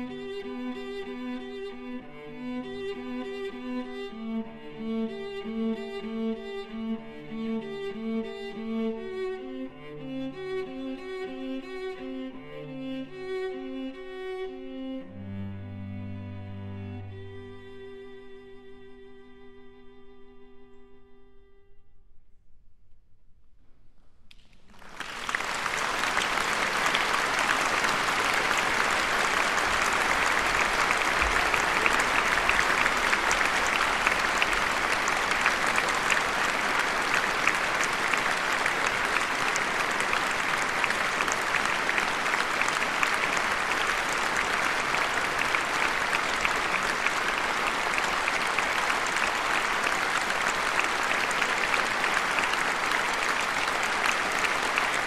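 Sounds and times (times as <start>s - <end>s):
audience applauding: 24.3s - 55.0s.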